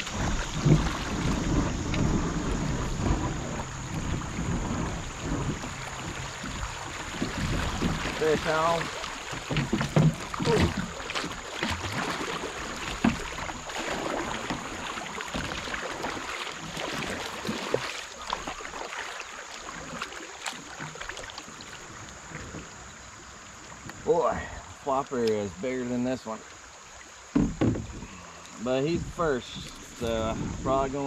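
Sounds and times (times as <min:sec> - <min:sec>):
water splashing around a kayak: 0:00.0 - 0:31.0
sharp knocks: 0:27.3 - 0:28.0.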